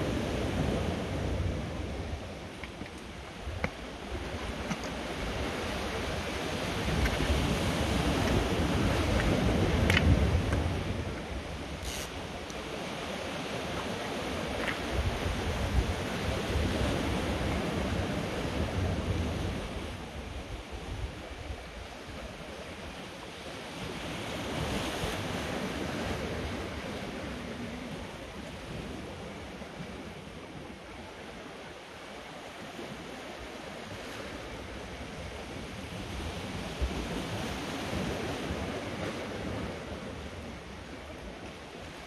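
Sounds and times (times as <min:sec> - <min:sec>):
sea swell washing over rocks: 0:00.0 - 0:19.8
wind buffeting microphone: 0:03.2 - 0:22.3.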